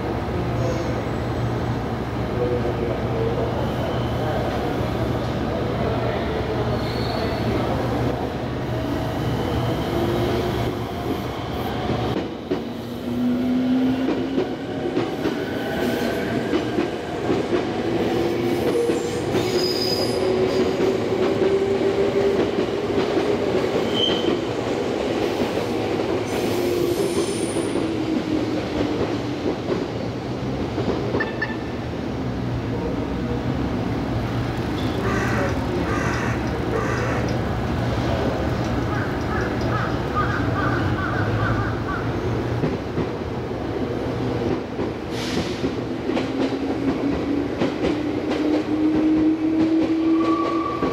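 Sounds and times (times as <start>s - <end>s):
electric train running past: 1.2s - 50.9s
wheels squealing on rails: 3.4s - 4.5s, 6.5s - 8.0s, 8.8s - 12.0s, 18.2s - 21.0s, 23.8s - 24.5s, 26.2s - 28.2s, 49.0s - 50.9s.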